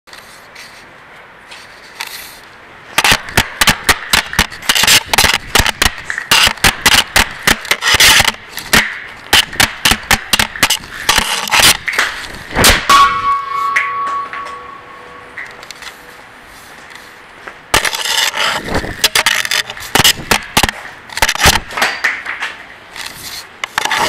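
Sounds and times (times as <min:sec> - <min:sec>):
puck scraping on concrete: 0:00.1 - 0:24.0
hockey stick tapping puck: 0:03.0 - 0:12.2, 0:17.8 - 0:22.6.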